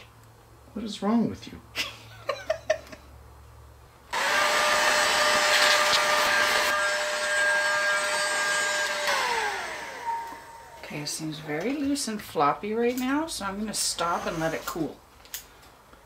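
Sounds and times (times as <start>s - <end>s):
heat gun fan whining: 4.1s - 11.8s.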